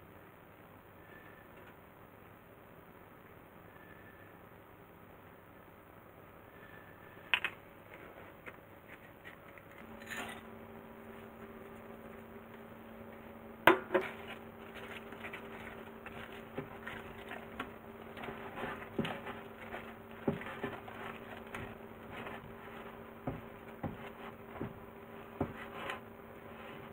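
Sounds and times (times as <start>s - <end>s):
steady low hum: 0.0s - 26.9s
spatula scraping glass bowl: 14.1s - 26.9s.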